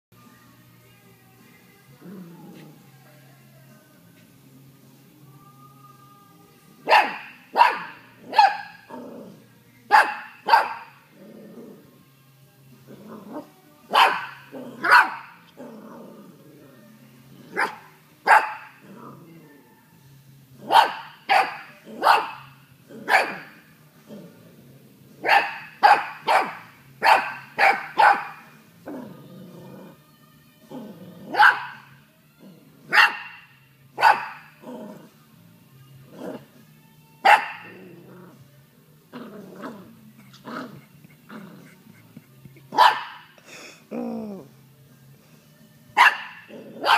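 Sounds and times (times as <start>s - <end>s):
puppy growling: 2.0s - 3.0s, 7.8s - 9.6s, 10.8s - 12.1s, 12.8s - 17.9s, 18.6s - 19.7s, 21.6s - 25.3s, 28.7s - 30.1s, 30.7s - 33.0s, 34.4s - 35.3s, 35.9s - 36.6s, 37.4s - 44.7s, 46.3s - 46.9s
puppy barking in high yaps: 6.9s - 8.8s, 9.9s - 11.0s, 13.9s - 15.3s, 20.7s - 22.5s, 25.2s - 28.4s, 31.3s - 31.9s, 32.9s - 33.4s, 34.0s - 34.5s, 37.2s - 37.7s, 42.7s - 43.3s, 46.0s - 46.9s.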